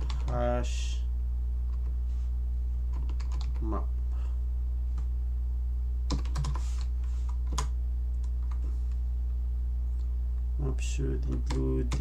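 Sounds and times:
keyboard typing: 0:00.0 - 0:00.4, 0:02.9 - 0:03.7, 0:06.1 - 0:08.6, 0:11.3 - 0:12.0
steady low hum: 0:00.0 - 0:12.0.

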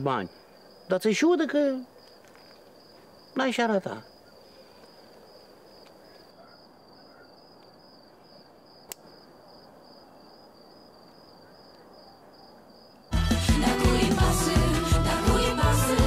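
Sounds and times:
crickets chirping: 0:00.0 - 0:13.2
sharp click: 0:08.9 - 0:09.1.

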